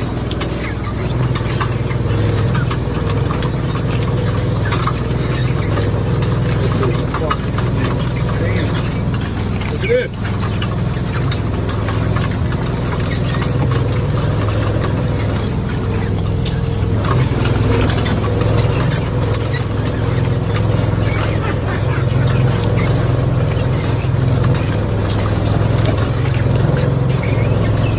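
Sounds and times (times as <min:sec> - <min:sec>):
boat motor drone: 0:00.0 - 0:27.9.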